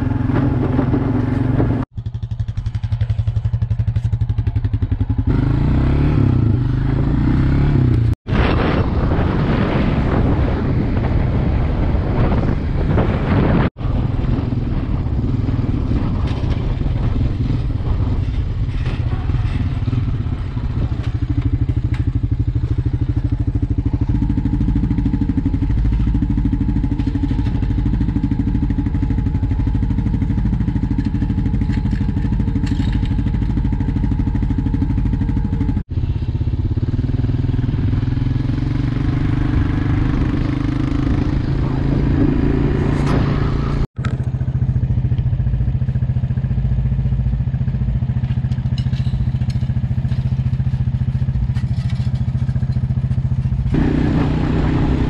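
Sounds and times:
quad bike engine running: 0.0 - 55.0.

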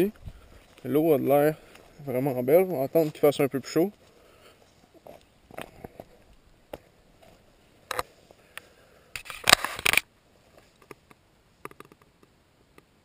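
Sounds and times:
camera handling clicks and scrapes: 7.9 - 8.1, 9.1 - 10.1.

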